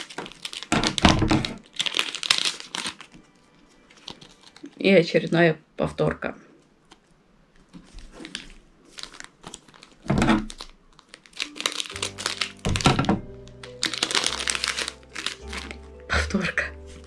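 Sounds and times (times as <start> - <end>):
packets tearing and crinkling: 0.0 - 4.8, 7.7 - 16.0
background music: 0.0 - 6.0, 10.5 - 17.0.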